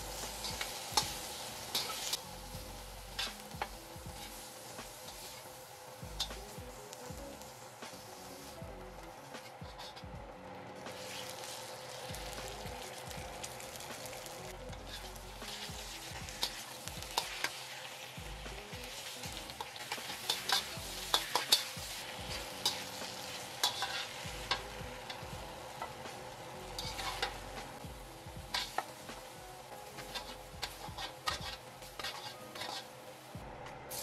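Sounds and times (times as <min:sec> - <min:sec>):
spatula scraping a wok: 0:00.0 - 0:05.6, 0:09.2 - 0:10.0, 0:10.9 - 0:12.9, 0:13.5 - 0:18.2, 0:18.8 - 0:27.6, 0:28.5 - 0:29.0, 0:29.8 - 0:33.1
chicken sizzling in oil: 0:00.0 - 0:10.0, 0:10.8 - 0:34.0.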